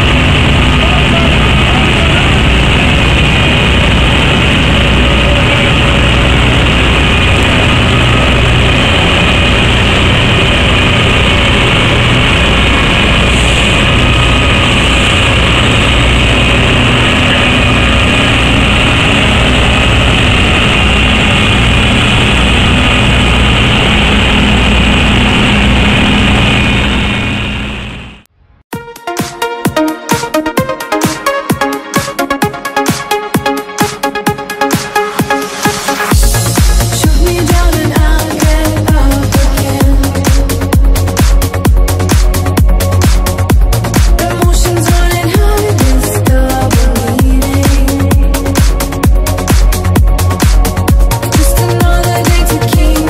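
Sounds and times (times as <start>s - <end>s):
combine harvester engines running: 0.0s - 28.2s.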